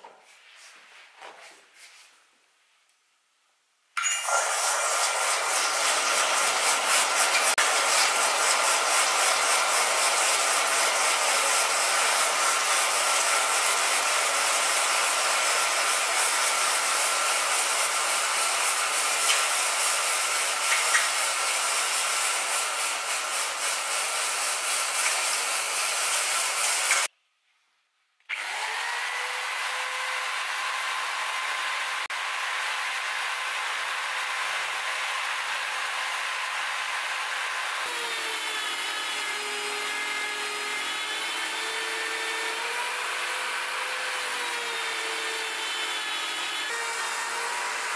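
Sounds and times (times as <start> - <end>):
hot steel hissing in water: 4.0 - 27.1
rotary tool whine: 4.0 - 27.1, 32.8 - 47.9.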